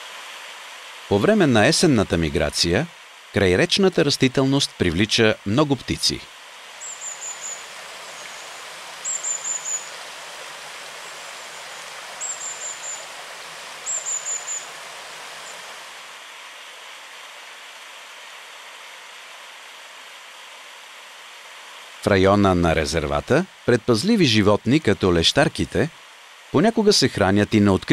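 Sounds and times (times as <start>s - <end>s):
stream rushing: 6.3s - 18.6s
bird calling high thin notes: 6.8s - 15.9s.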